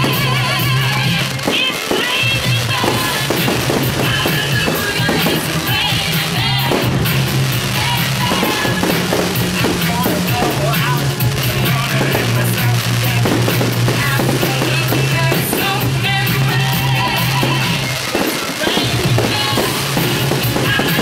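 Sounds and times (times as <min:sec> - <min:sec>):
fireworks banging and crackling: 0:00.0 - 0:21.0
loud rock music: 0:00.0 - 0:21.0.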